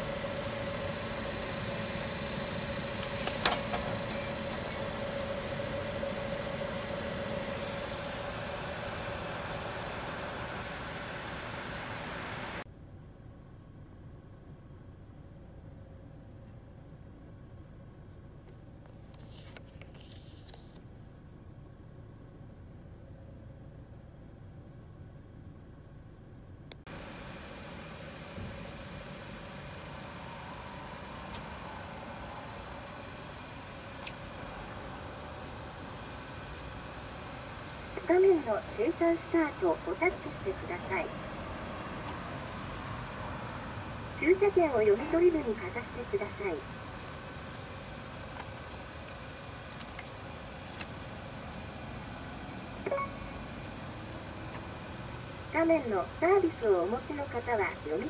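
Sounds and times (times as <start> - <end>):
steady mechanical hum: 0.0 - 58.0
faint steady tone: 21.2 - 48.4
ticket reader beep: 52.9 - 53.2.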